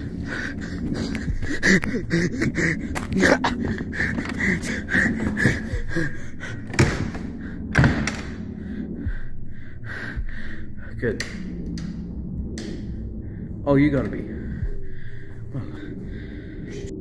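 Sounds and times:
person panting hard: 0.0s - 7.7s, 8.5s - 10.9s, 14.3s - 17.0s.

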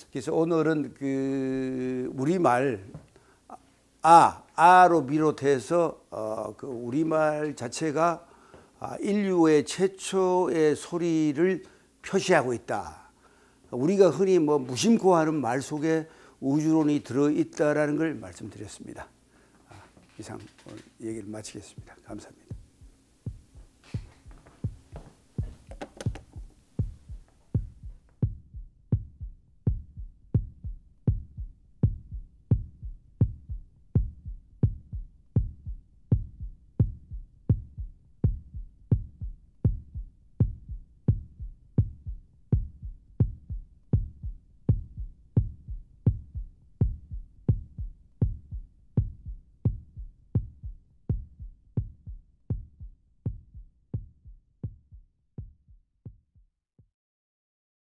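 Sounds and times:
low thumping beat: 6.2s - 8.1s, 20.3s - 56.5s
sharp clicks: 25.7s - 26.4s.

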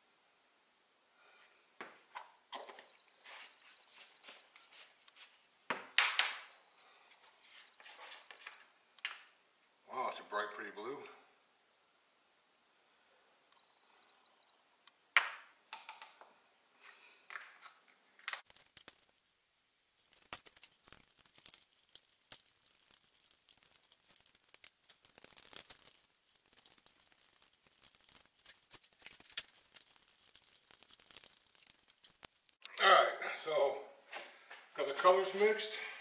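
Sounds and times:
stir sticks scraping plastic cups: 20.0s - 32.6s.

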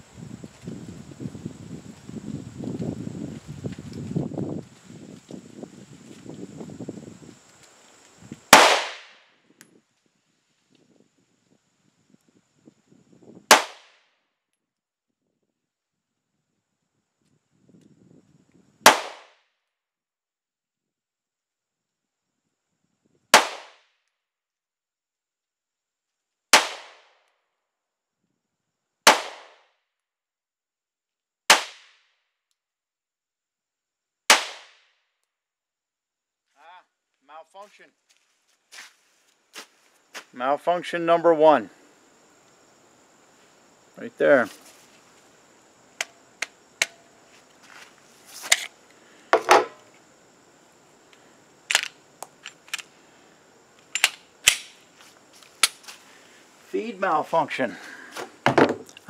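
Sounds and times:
pistol shots: 8.6s - 9.2s, 13.5s - 13.9s, 18.9s - 19.3s, 23.4s - 23.8s, 26.6s - 27.0s, 29.1s - 29.6s
pistol action metallic clicks: 46.0s - 47.0s, 53.9s - 54.8s.

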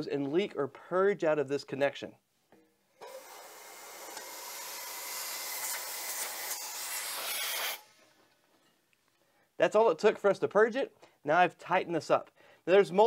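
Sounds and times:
refrigerant gas hissing from hose: 3.0s - 7.8s.

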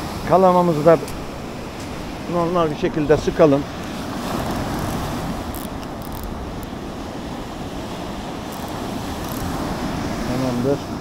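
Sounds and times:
waves breaking on shore: 0.0s - 11.0s
faint ticks: 8.5s - 9.5s.

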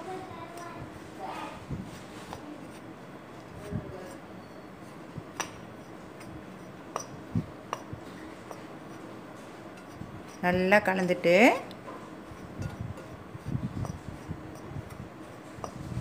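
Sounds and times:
spoon scraping flour in bowl: 5.8s - 11.3s, 12.0s - 16.0s.

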